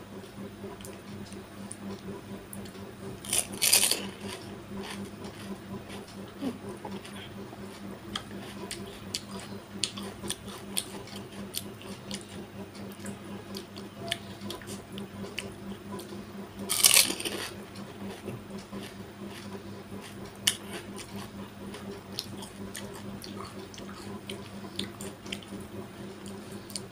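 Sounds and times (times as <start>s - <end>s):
steady low hum: 0.0s - 26.9s
crunch of food bitten: 3.2s - 5.0s, 16.7s - 17.5s.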